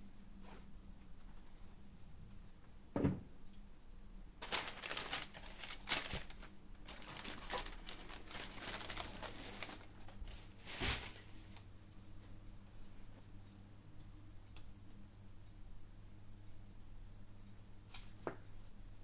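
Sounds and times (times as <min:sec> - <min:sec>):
tissue paper rustling: 0:04.4 - 0:11.6.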